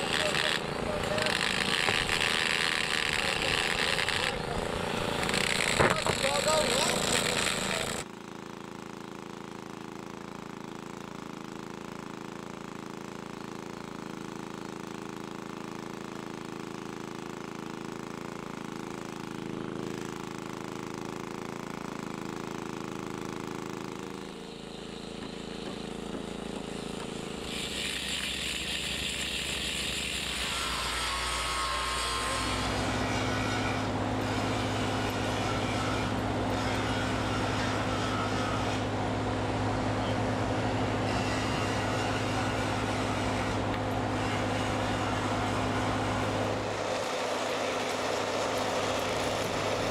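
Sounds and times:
machinery humming: 24.4s - 49.9s.

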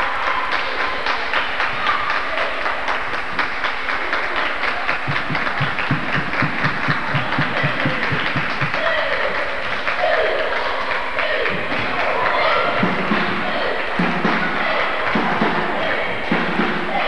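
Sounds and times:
claps and knocks: 0.0s - 17.0s
crowd voices: 0.0s - 17.0s
basketball dribbled on hardwood: 5.1s - 8.7s.

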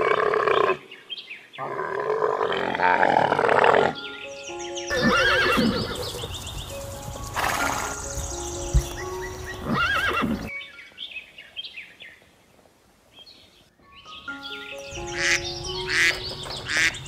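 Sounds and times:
rough animal call: 1.6s - 4.0s
background music: 2.7s - 11.2s, 13.8s - 17.0s
horse whinnying: 4.9s - 6.0s, 7.4s - 8.0s, 9.6s - 10.5s.

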